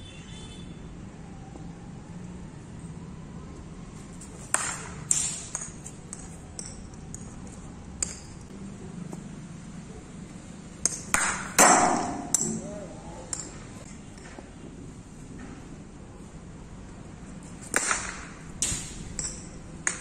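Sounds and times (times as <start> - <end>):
cricket ball striking bat: 4.5 - 6.2, 10.9 - 12.7
ball bouncing on concrete: 4.5 - 7.4, 10.8 - 12.6, 17.7 - 20.0.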